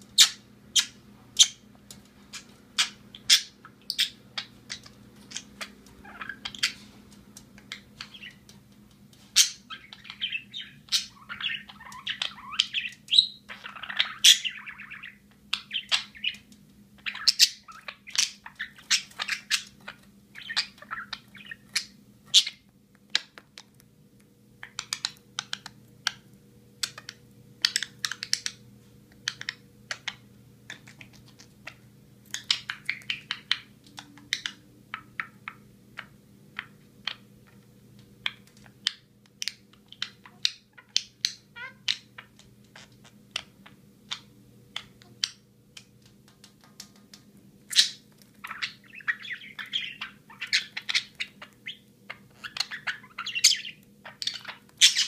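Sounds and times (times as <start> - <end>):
budgerigar chattering and chirping: 0.2 - 1.6, 2.4 - 6.9, 9.4 - 22.6, 47.7 - 55.0.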